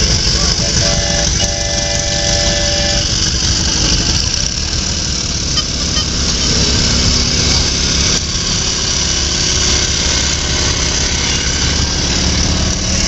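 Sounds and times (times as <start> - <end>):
held pitched tone: 0.0 - 4.2, 5.4 - 7.0
small tractor engine running: 0.0 - 13.0.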